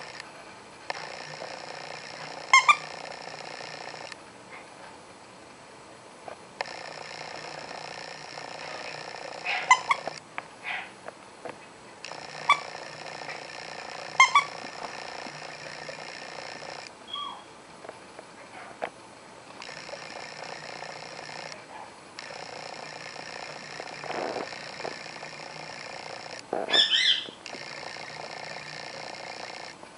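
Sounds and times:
parrot squeaky chirps: 17.1s - 17.5s, 26.7s - 27.4s.

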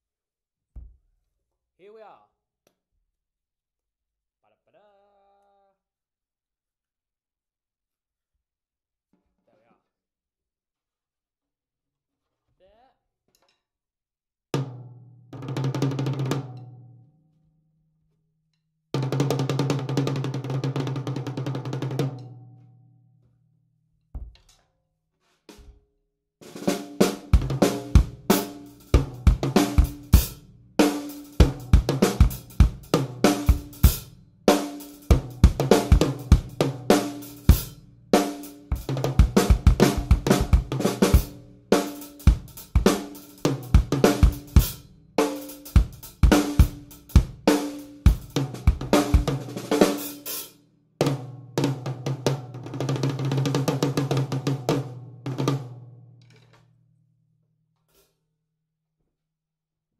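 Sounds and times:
snare drum: 30.8s - 37.6s, 38.2s - 50.2s.

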